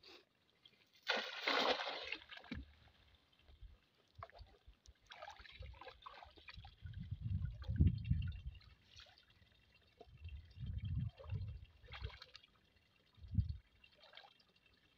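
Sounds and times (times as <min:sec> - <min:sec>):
water sloshing and dripping: 0:00.6 - 0:14.9
net splashing onto water: 0:01.0 - 0:02.7.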